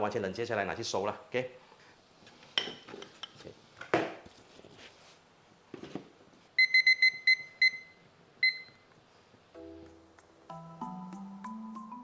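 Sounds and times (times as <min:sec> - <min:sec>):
keypad beeps: 0:06.6 - 0:08.8.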